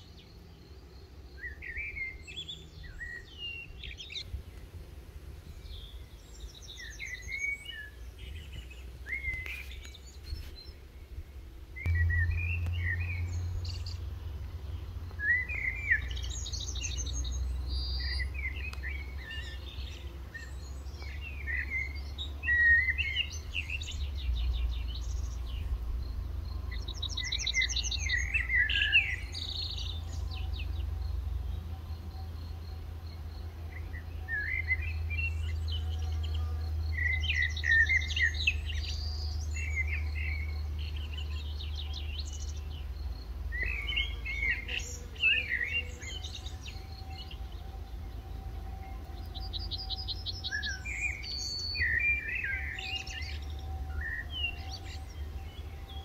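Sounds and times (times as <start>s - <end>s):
songbirds chirping and trilling: 0.0s - 56.0s
low rumble: 11.8s - 18.0s.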